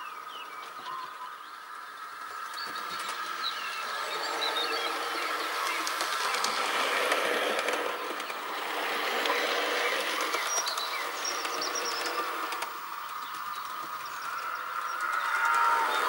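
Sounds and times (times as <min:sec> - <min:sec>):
wheels clicking on rails: 0:02.0 - 0:16.0
model train motor whir: 0:02.3 - 0:16.0.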